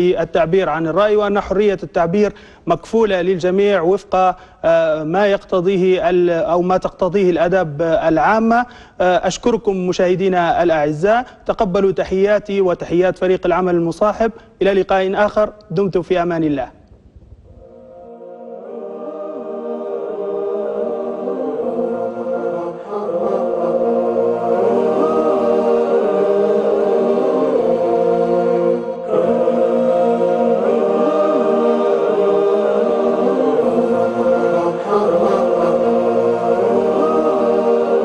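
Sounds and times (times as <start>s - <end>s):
voices chanting in chorus: 17.6s - 38.0s.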